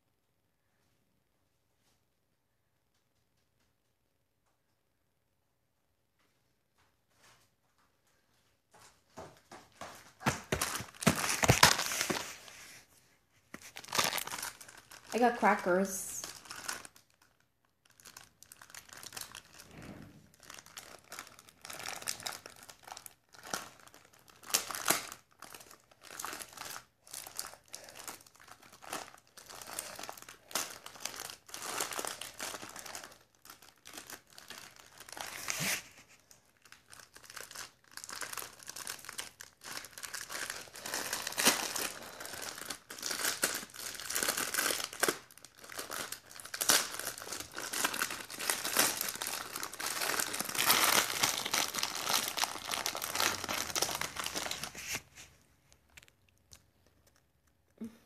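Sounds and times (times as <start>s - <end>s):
cracker packet crinkling: 10.1s - 12.7s, 13.5s - 57.7s.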